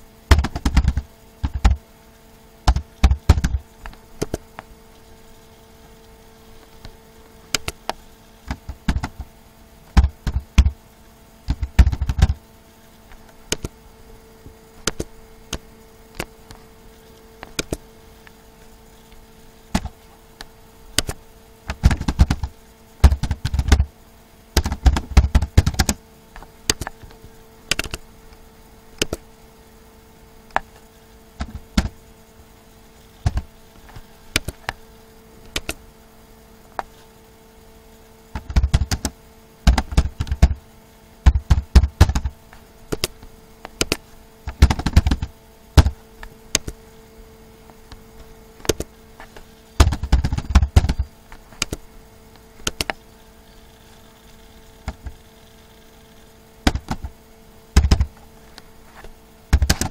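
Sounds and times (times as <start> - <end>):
faint steady hum: 0.0 - 59.9
computer keyboard typing: 0.3 - 1.8, 2.7 - 3.6, 8.6 - 9.2, 21.0 - 23.9, 24.6 - 26.0, 27.7 - 28.0, 38.4 - 39.1, 41.2 - 43.1, 49.8 - 51.8, 57.8 - 58.1.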